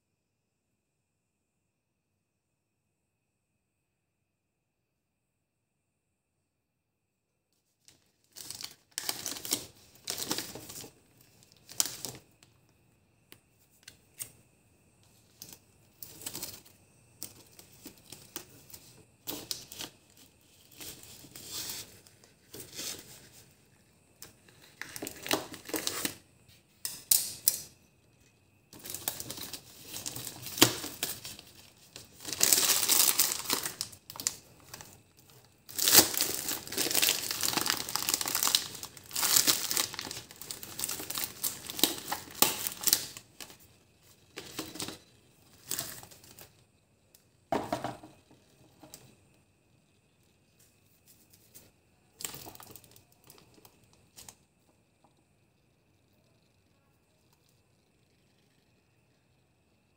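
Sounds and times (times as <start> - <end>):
crinkling and rustling handling: 7.6 - 12.7, 15.0 - 46.7, 50.4 - 54.4.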